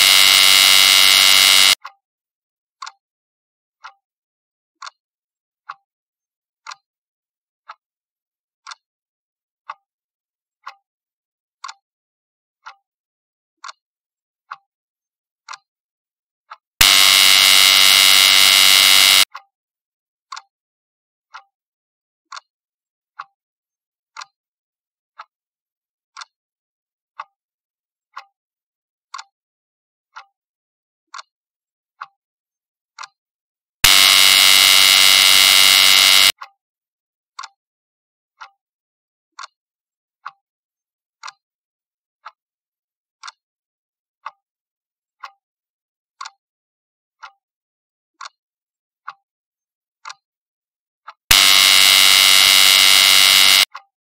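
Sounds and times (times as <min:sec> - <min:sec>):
loud buzzer: 0:00.0 - 0:01.8, 0:16.8 - 0:19.3, 0:33.8 - 0:36.3, 0:51.3 - 0:53.7.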